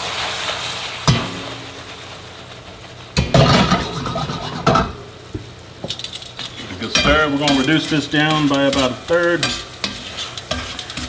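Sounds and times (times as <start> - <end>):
wine sizzling in a hot pan: 0.0 - 11.0
skillet clattering on stove grate: 3.2 - 5.0, 5.8 - 11.0.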